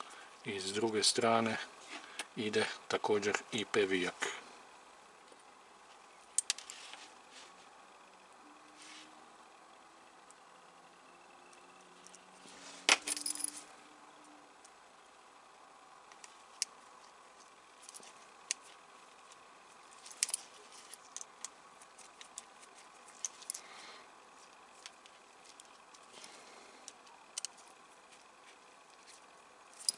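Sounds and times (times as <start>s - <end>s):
metallic clinks: 12.9s - 13.7s.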